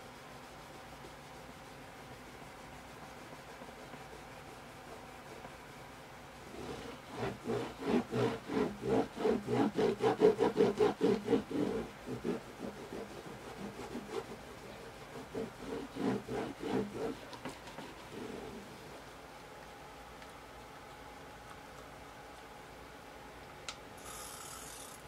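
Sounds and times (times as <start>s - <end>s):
cloth rubbing guitar fretboard: 6.5s - 18.6s.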